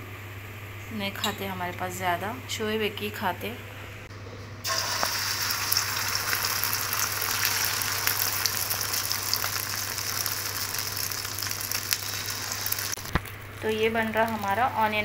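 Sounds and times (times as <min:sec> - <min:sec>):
egg sizzling in a frying pan: 0:04.6 - 0:14.7.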